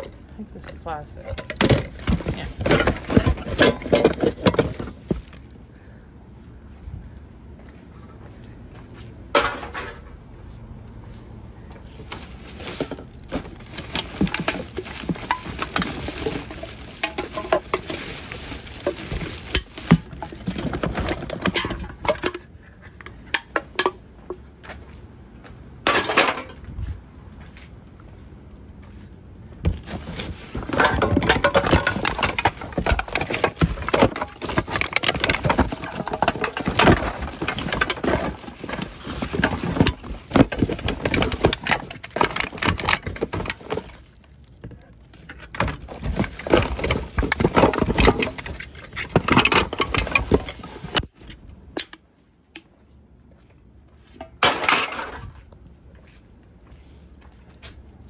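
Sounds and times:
bottles and containers knocking: 0:01.3 - 0:05.4, 0:29.7 - 0:44.0
plastic bags crinkling: 0:01.3 - 0:05.5, 0:12.0 - 0:22.3, 0:29.8 - 0:51.1.

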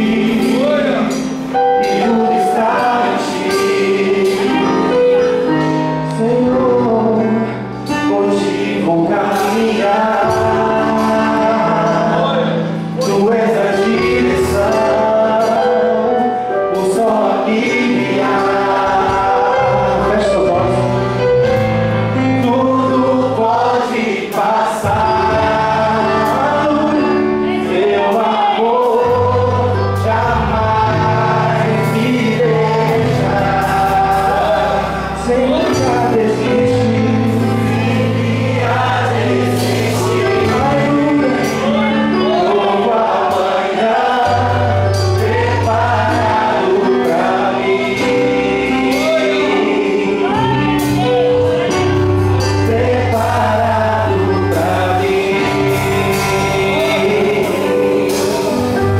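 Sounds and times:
backing singers: 0:00.0 - 0:58.9
keyboard: 0:00.0 - 0:58.9
man singing lead vocal: 0:00.0 - 0:58.9
drums: 0:43.3 - 0:58.9.

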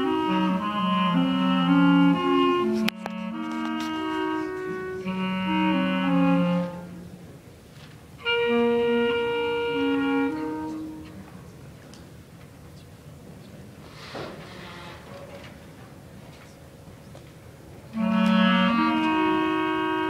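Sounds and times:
clarinet duet: 0:00.0 - 0:07.4, 0:08.2 - 0:11.4, 0:17.9 - 0:20.0.

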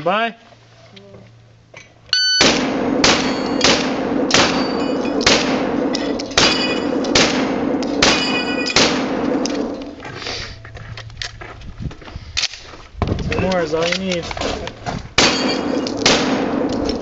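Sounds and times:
shot timer beep: 0:02.1 - 0:02.5
steel target ringing: 0:02.2 - 0:10.0, 0:15.2 - 0:16.0
shotgun shots: 0:02.4 - 0:09.9, 0:15.2 - 0:17.0.

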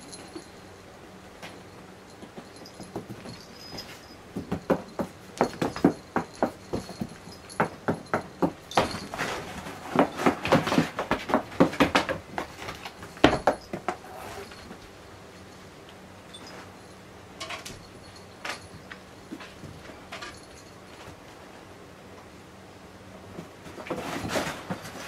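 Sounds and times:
paws scratching cardboard: 0:02.4 - 0:14.6.

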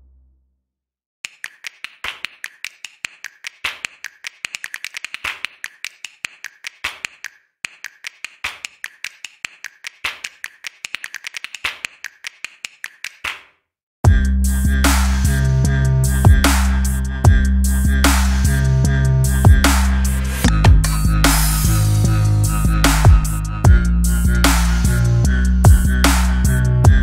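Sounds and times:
rapid sharp clicks: 0:01.2 - 0:13.4.

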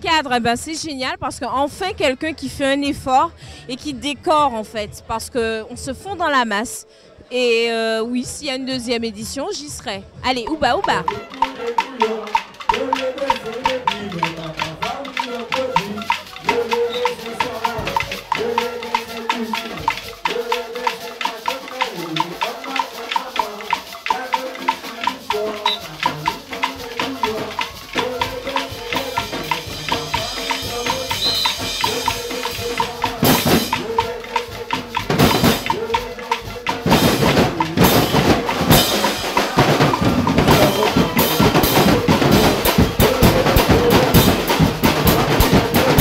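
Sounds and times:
percussion band drumming: 0:00.0 - 0:06.4, 0:08.3 - 0:46.0
person singing: 0:10.4 - 0:46.0.

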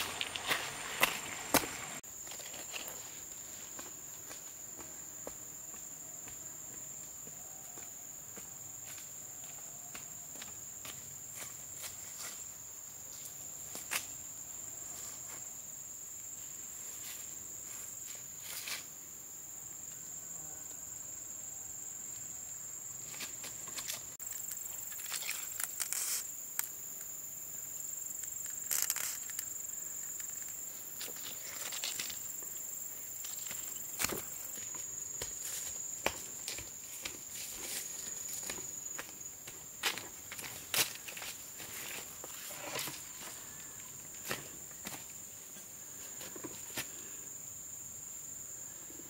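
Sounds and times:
footsteps on dirt path: 0:00.0 - 0:12.4, 0:33.2 - 0:45.2
insects droning: 0:00.0 - 0:49.0.

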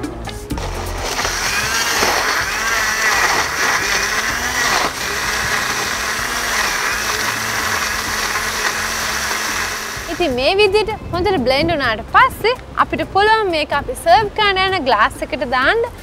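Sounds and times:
electric blender running: 0:00.6 - 0:10.7.

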